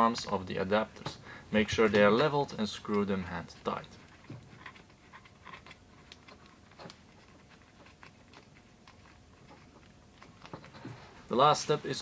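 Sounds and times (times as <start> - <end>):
small clicks and rubbing: 1.8 - 11.2.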